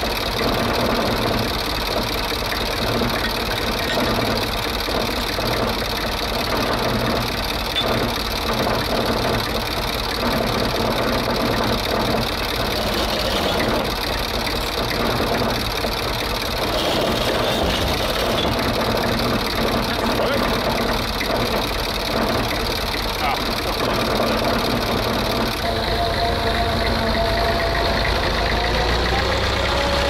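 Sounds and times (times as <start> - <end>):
tractor engine idling: 0.0 - 30.0.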